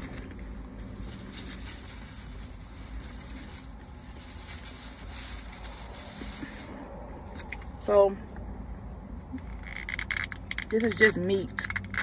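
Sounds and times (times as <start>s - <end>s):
rustling and handling noises: 0.0s - 7.4s
car cabin rumble and hiss: 0.0s - 12.0s.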